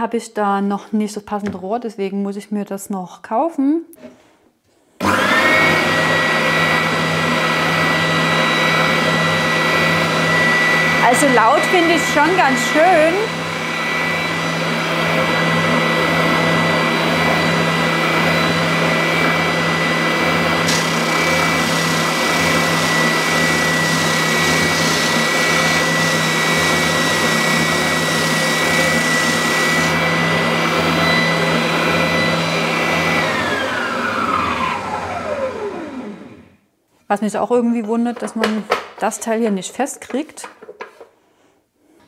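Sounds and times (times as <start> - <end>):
sander whining: 5.0 - 36.5
sander winding down: 5.0 - 36.6.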